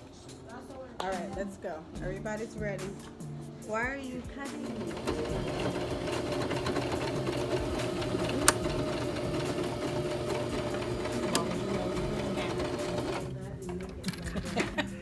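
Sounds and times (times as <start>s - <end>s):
sewing machine running: 4.6s - 13.4s.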